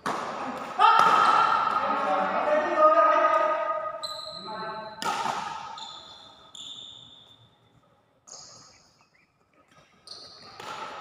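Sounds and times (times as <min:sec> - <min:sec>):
racket hitting shuttlecock: 0:00.0 - 0:02.0, 0:04.9 - 0:05.8, 0:10.4 - 0:11.0
shoe squeaks: 0:04.0 - 0:05.0, 0:05.6 - 0:10.6.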